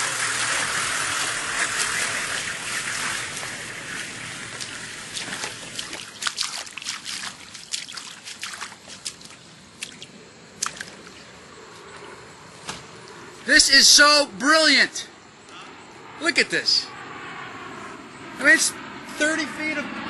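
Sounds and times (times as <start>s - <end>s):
water trickling and sloshing: 0.0s - 12.2s.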